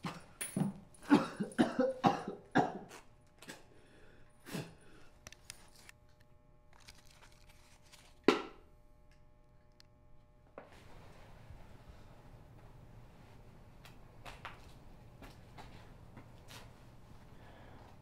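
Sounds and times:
man coughing and gasping: 0:01.0 - 0:02.9.

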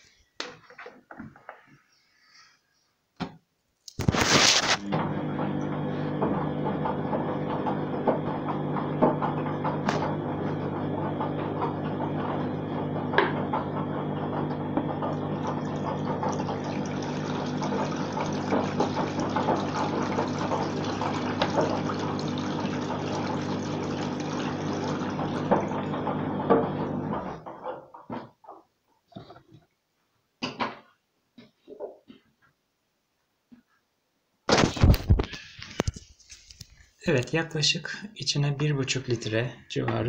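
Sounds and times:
washing machine low hum: 0:04.8 - 0:27.6
water pouring: 0:15.0 - 0:26.4.

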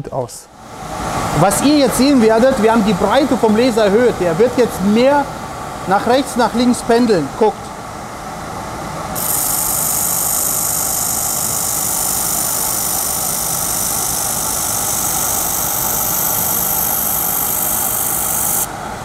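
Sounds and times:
laser welder hissing: 0:09.2 - 0:18.7.

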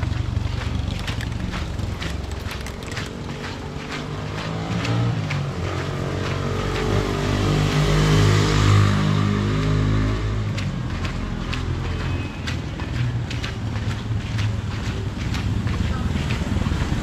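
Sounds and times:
vehicle engine passing by: 0:00.0 - 0:17.0.

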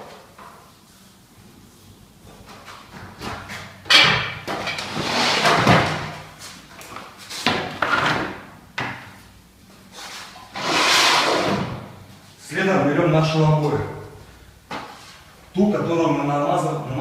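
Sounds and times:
paint roller swishing on wall: 0:09.9 - 0:12.3.

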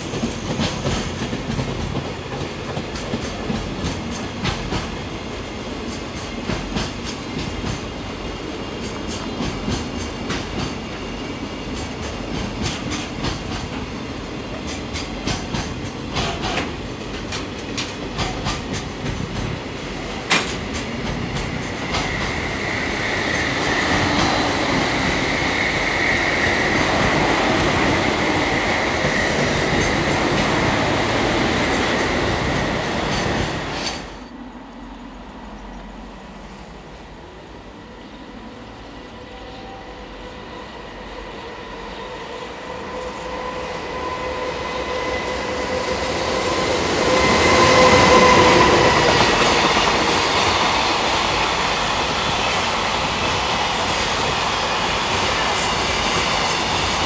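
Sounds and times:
freight train rolling past: 0:00.0 - 0:57.0.

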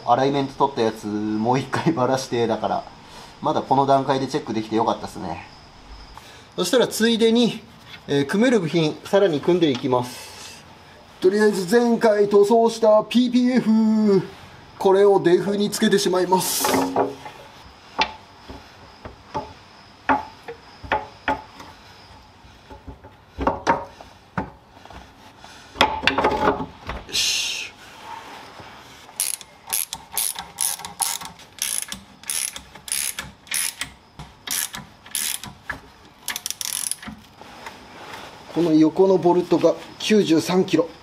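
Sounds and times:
ratchet wrench clicking: 0:29.2 - 0:35.6, 0:36.2 - 0:37.2.

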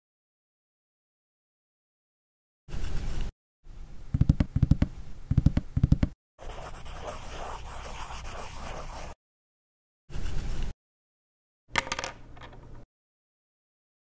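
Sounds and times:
pencil scribbling on paper: 0:06.4 - 0:09.2.

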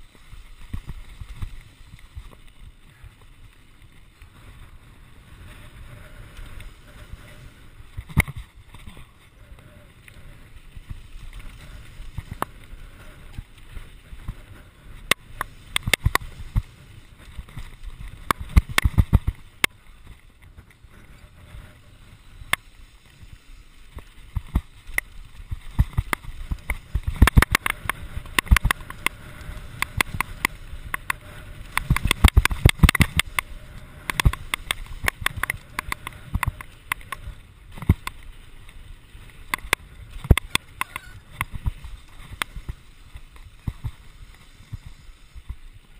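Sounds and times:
bike tyres on dirt and gravel: 0:00.0 - 0:45.9
bike rattling and knocking: 0:10.7 - 0:20.7, 0:23.9 - 0:45.9.

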